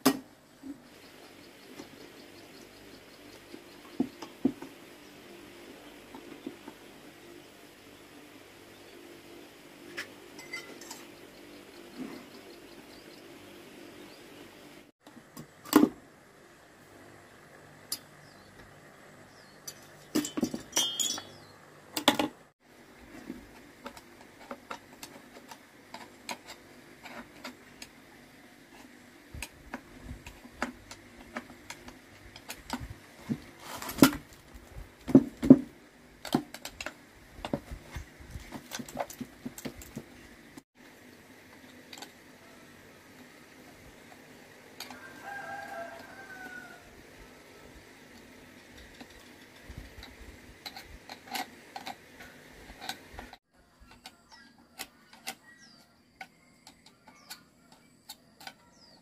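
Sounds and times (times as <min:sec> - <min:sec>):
screwdriver clicking on metal parts: 0:48.2 - 0:59.0.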